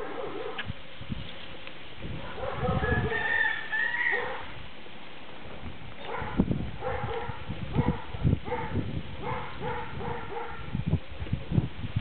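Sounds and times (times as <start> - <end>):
birds calling: 2.4 - 4.5.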